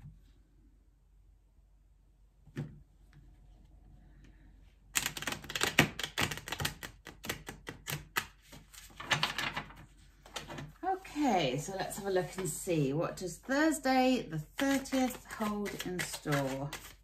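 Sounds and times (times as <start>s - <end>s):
cards being riffle-shuffled: 5.0s - 10.7s, 14.5s - 17.0s.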